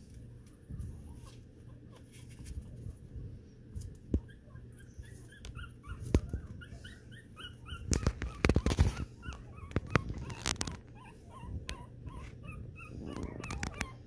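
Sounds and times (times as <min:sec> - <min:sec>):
puppy squeaking and whimpering: 0:04.0 - 0:14.0.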